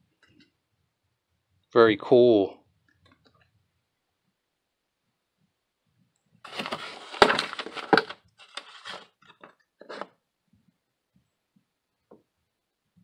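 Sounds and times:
cardboard box handled: 6.5s - 10.1s
paper crinkling: 6.5s - 10.1s.

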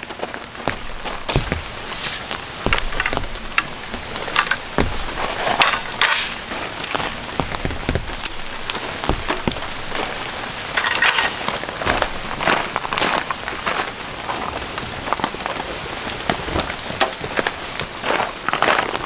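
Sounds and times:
metal poles clinking on gravel: 0.0s - 15.5s
rain pattering: 0.0s - 19.0s.

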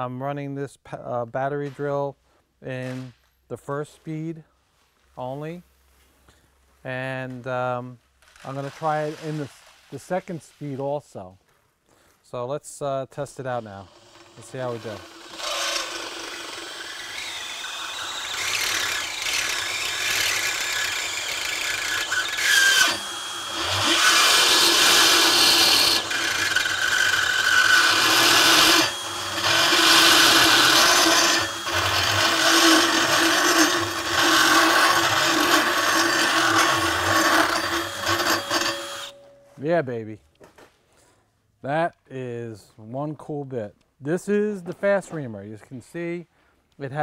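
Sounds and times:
reamer grinding through metal: 13.4s - 39.2s
cordless drill motor whine: 13.8s - 39.2s.

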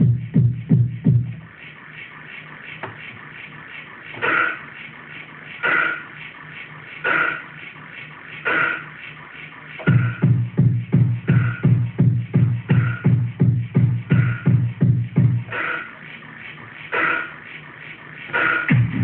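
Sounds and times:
loud kick drum: 0.0s - 1.4s, 9.8s - 15.6s, 18.4s - 19.0s
pulsing bass line: 0.0s - 19.0s.

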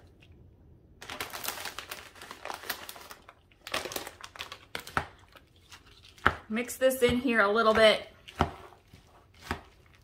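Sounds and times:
plastic bag crinkling: 1.0s - 6.1s.

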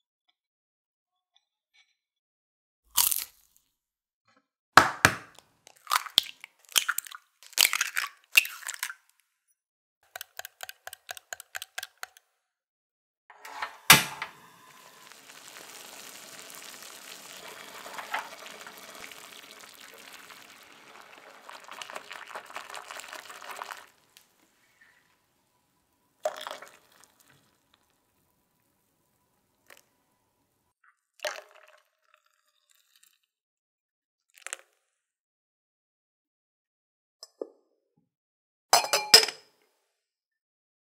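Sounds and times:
eggs cracked into bowl: 4.8s - 9.0s
eggs beaten with light taps: 10.1s - 12.2s
water boiling in glass pot: 14.2s - 25.3s, 26.1s - 28.2s.

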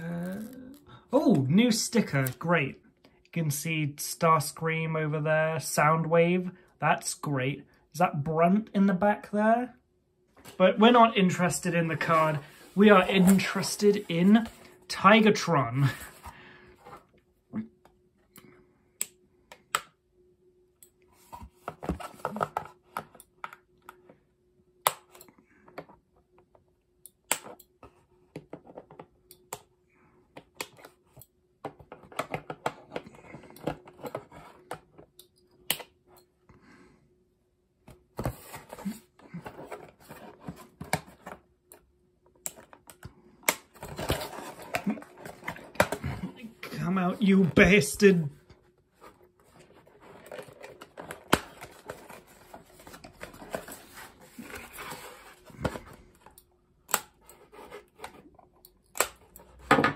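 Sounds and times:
cardboard packaging rustling: 43.7s - 48.1s, 48.9s - 56.3s.

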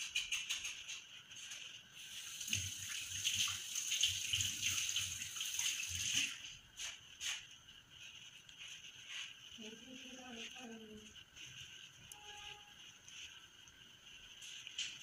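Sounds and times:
thread rustling against crochet hook: 6.1s - 15.0s.

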